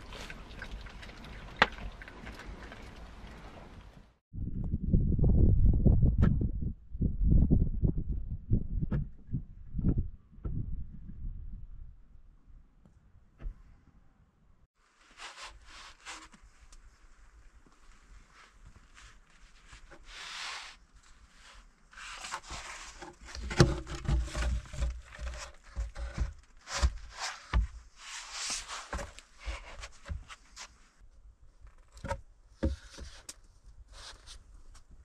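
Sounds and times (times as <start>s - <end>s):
rustling and scraping: 14.9s - 31.0s.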